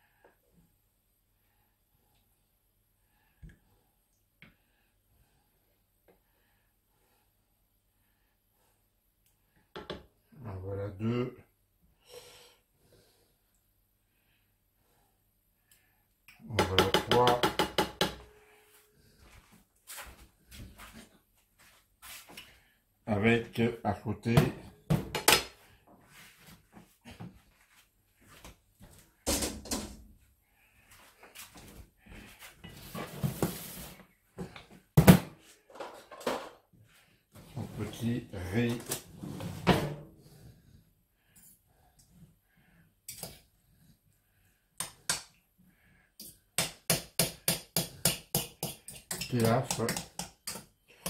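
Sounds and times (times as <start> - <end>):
metal utensil tapping saucepan: 48.4 - 50.6.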